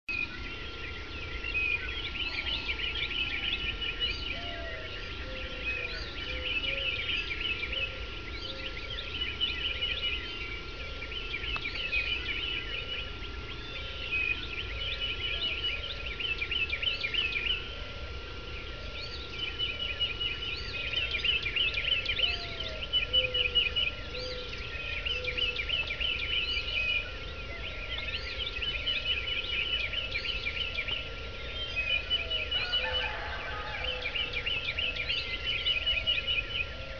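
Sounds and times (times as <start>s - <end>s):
birds singing: 0.1s - 36.9s
lower slower bird calls: 0.1s - 36.9s.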